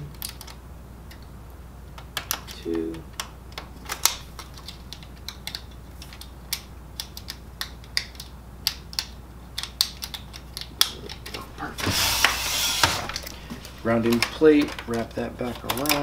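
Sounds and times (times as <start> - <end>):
low steady hum: 0.0 - 16.0
clicks and taps of connectors: 2.0 - 11.4, 13.2 - 16.0.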